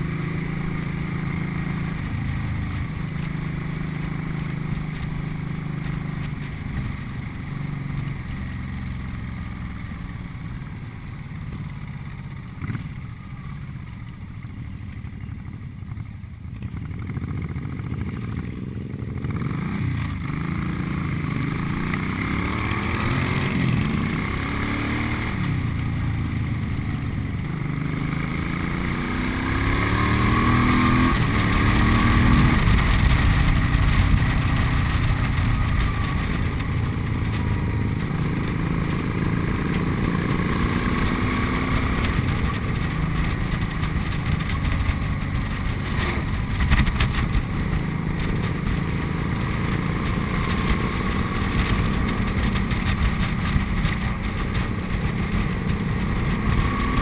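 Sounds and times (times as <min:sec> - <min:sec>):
motorcycle engine revving: 0:00.0 - 0:57.0
wind rumble on microphone: 0:27.0 - 0:57.0.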